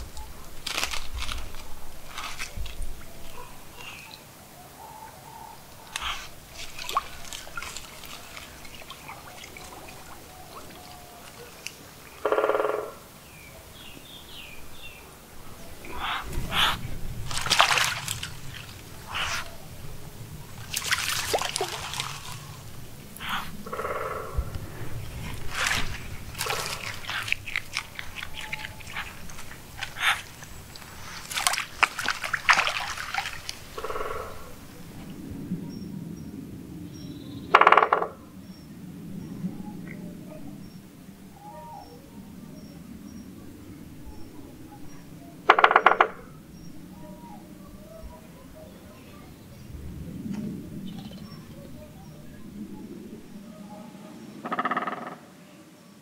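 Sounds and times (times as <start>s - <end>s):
small crackles: 0.0s - 4.2s, 24.4s - 34.2s
water dripping: 0.0s - 4.3s, 5.7s - 13.1s, 14.7s - 34.7s
woodpecker drumming: 5.8s - 13.3s, 15.9s - 19.6s, 25.2s - 34.5s, 37.5s - 38.2s, 45.5s - 46.2s, 54.4s - 55.2s.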